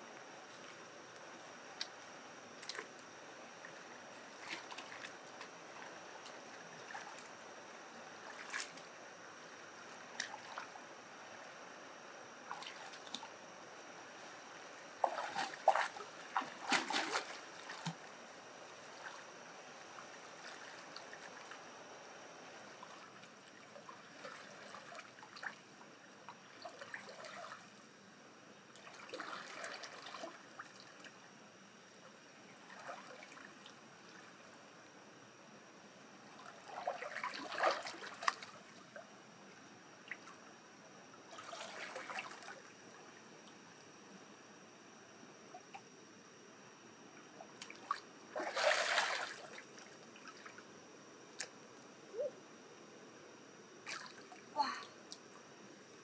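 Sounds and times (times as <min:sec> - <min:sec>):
water splashing and trickling: 0:12.5 - 0:13.3, 0:15.0 - 0:18.1, 0:20.0 - 0:21.6, 0:28.8 - 0:31.1, 0:36.4 - 0:38.8, 0:41.3 - 0:42.7, 0:47.5 - 0:50.6, 0:53.9 - 0:54.9.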